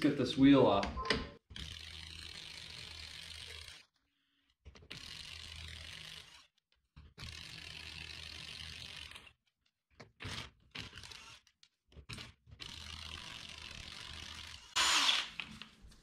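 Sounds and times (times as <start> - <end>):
impact wrench running: 12.6 - 15.4.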